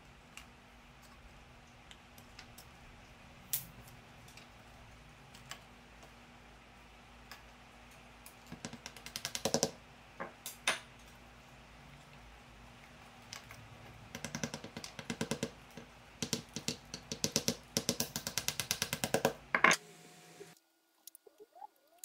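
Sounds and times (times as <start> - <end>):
small hammer tapping wood: 8.5 - 9.8, 14.2 - 19.4.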